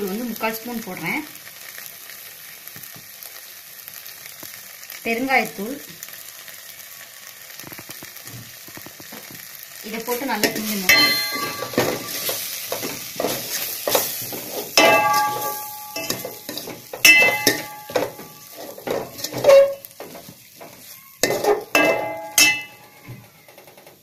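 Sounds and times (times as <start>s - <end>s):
vegetables sizzling: 0.0s - 24.0s
spoon scraping metal pot: 10.4s - 23.1s.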